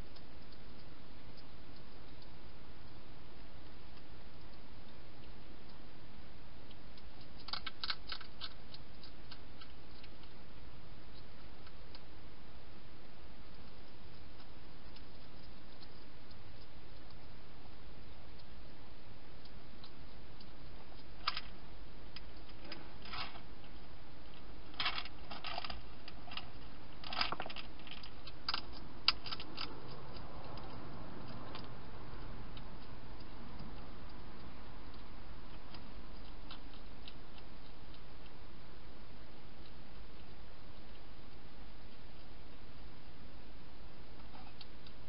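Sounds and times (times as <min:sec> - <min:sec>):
background hiss: 0:00.0 - 0:45.0
hedgehog eating clicks and crunches: 0:00.0 - 0:45.0.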